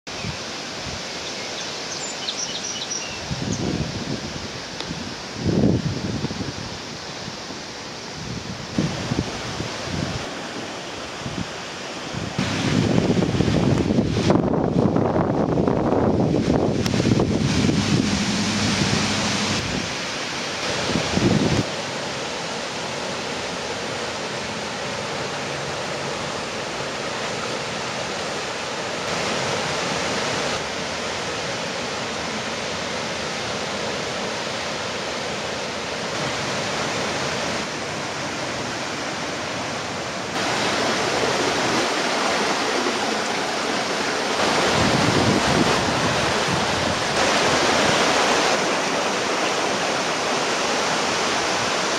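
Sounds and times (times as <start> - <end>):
river rushing: 0.1 - 51.9
wind on microphone: 3.0 - 21.8, 40.4 - 51.9.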